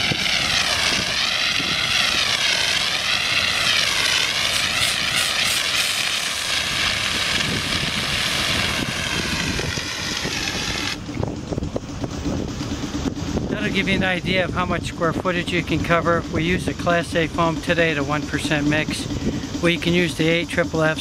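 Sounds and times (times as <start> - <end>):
foam jet rushing hiss: 0.0 - 11.0.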